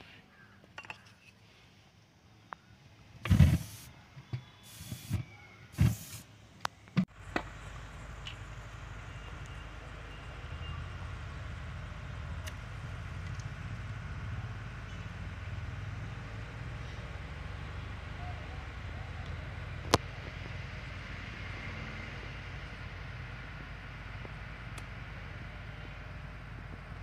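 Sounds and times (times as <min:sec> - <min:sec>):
gas puffing from plastic bottle: 0:03.2 - 0:03.9, 0:04.6 - 0:05.2, 0:05.8 - 0:06.2
low rumble with faint hiss: 0:07.1 - 0:21.0.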